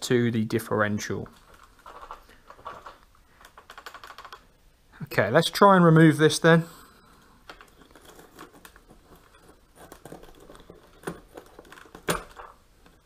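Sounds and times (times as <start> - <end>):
parts rustling and scraping: 1.1 - 4.6, 6.8 - 13.0.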